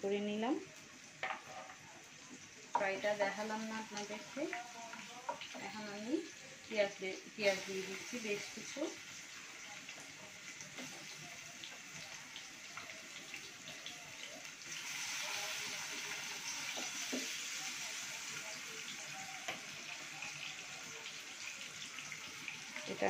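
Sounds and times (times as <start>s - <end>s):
onions sizzling in oil: 0.0s - 23.0s.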